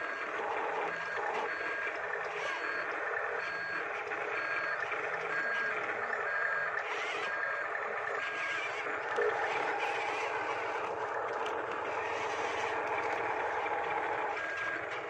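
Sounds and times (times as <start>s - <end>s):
motor whirr: 0.0s - 15.0s
reversing beeper: 0.1s - 15.0s.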